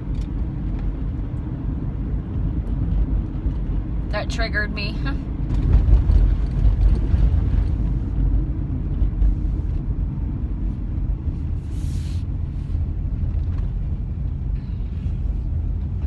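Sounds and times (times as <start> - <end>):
road and engine rumble in car: 0.0 - 16.0
brief hiss: 11.6 - 12.3.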